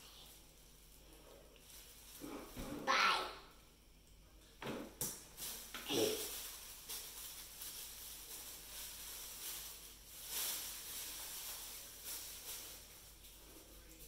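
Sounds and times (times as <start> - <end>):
plastic bag rustling: 0.0 - 3.2, 4.8 - 14.0.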